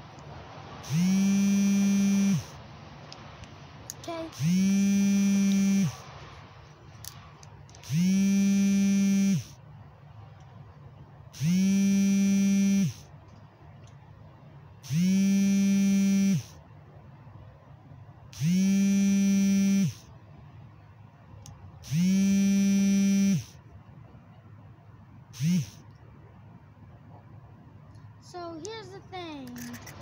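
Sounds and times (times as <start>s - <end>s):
small motor buzzing: 0.8s - 2.5s, 4.1s - 6.0s, 7.8s - 9.6s, 11.4s - 13.1s, 14.8s - 16.6s, 18.4s - 20.1s, 21.8s - 23.6s, 25.4s - 25.8s.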